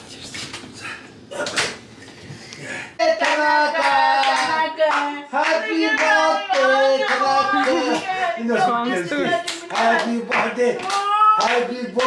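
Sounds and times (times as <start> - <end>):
woman singing: 3.0 - 11.8
handclaps: 3.2 - 8.1, 9.5 - 12.0.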